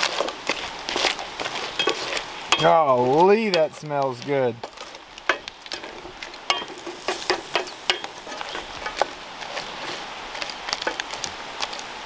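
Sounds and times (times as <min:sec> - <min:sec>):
spoon scraping metal pot: 0:00.0 - 0:02.7, 0:05.3 - 0:10.0
food sizzling in oil: 0:00.0 - 0:03.0, 0:04.7 - 0:11.2.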